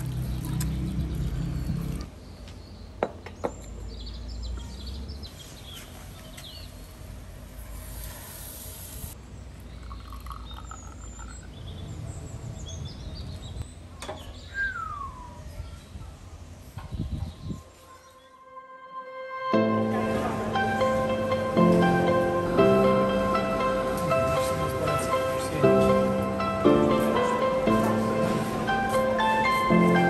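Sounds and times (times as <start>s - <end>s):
low outdoor rumble: 0.0s - 2.2s
small birds chirping: 9.3s - 18.3s
falling whistled bird call: 14.3s - 15.6s.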